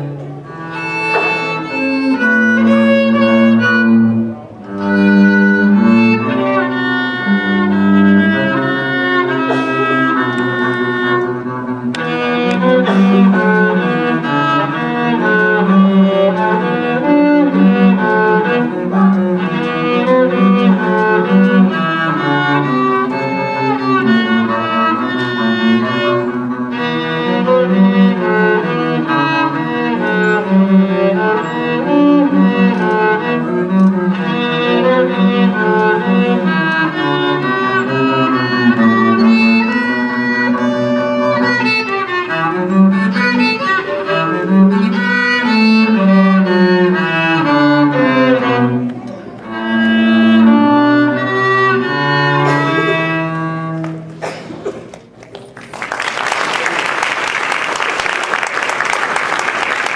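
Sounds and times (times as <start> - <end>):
violin melody: 0.0 - 54.2
sustained cello line: 0.0 - 54.8.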